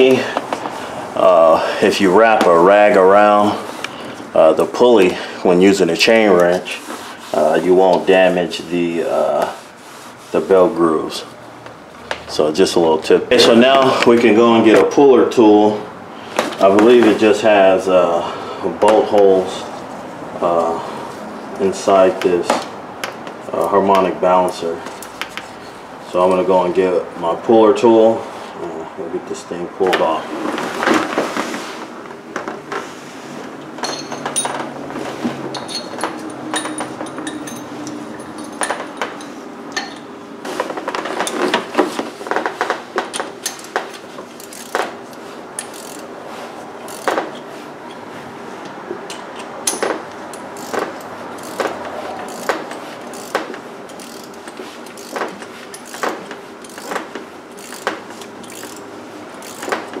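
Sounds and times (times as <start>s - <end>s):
metal hand tools clinking: 33.8s - 34.7s, 35.5s - 40.1s
hand ratchet clicking: 42.6s - 46.1s, 46.8s - 47.4s, 49.1s - 60.0s.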